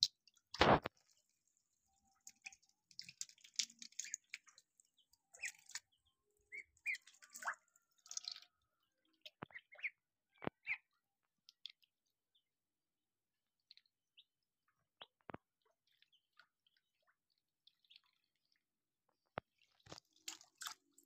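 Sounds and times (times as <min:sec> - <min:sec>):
water dripping: 0:00.0 - 0:10.8, 0:19.6 - 0:21.0
ducklings peeping: 0:05.3 - 0:05.9, 0:06.5 - 0:08.4, 0:09.4 - 0:10.0.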